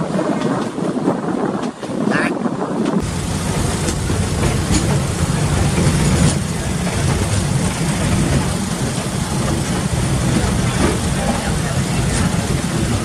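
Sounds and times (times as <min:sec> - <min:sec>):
train rumbling on track: 0:00.0 - 0:13.0
wind on microphone: 0:00.0 - 0:13.0.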